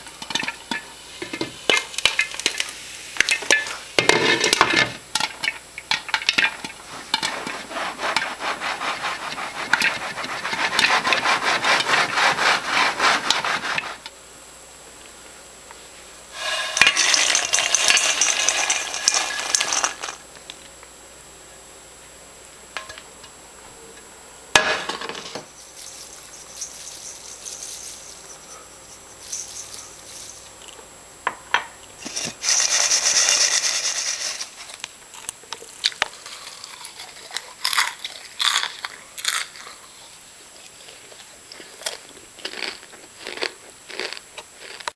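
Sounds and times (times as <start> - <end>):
popcorn rattling into metal bowl: 16.4 - 20.2, 24.8 - 30.6, 32.1 - 34.7.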